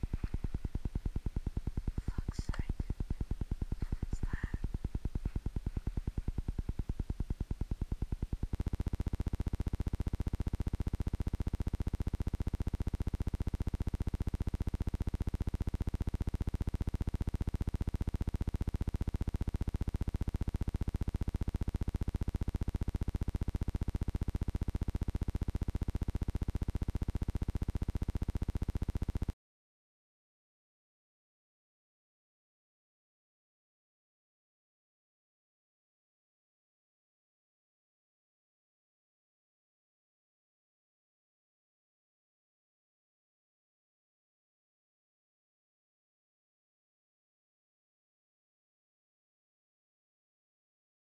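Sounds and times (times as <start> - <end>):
pulsing electronic buzz: 0.0 - 29.4.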